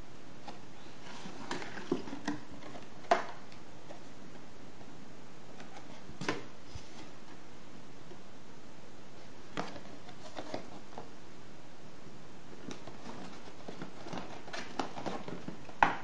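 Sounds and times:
cardboard box rustling and tapping: 0.4s - 4.0s, 12.7s - 16.0s.

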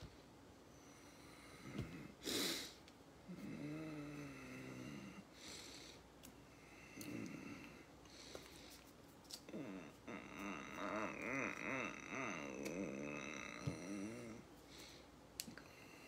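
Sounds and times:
low wordless hum: 2.8s - 16.0s
man breathing: 4.2s - 8.9s, 14.6s - 16.0s.

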